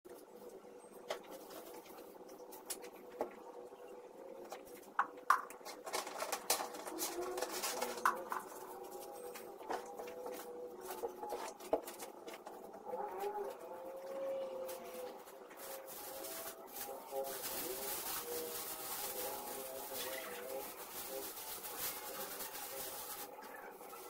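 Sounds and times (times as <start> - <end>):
knocks and rustling of cleaning: 4.5 - 13.9.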